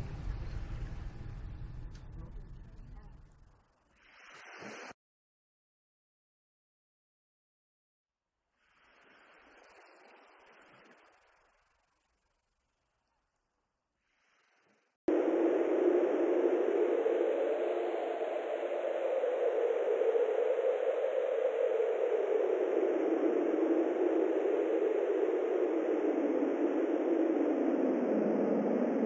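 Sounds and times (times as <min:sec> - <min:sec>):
steady rushing noise: 0:15.1 - 0:29.0.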